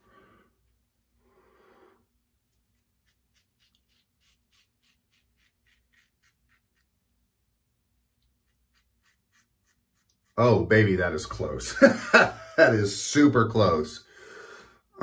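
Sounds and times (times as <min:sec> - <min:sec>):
razor scraping stubble: 0:02.4 - 0:07.0, 0:08.1 - 0:11.2.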